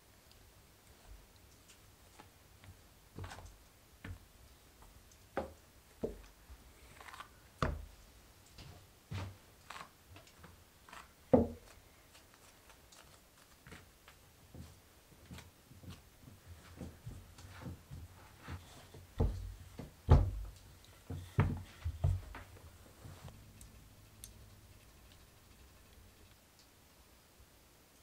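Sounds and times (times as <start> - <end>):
knife cutting dough on a mat: 10.8 - 16.0.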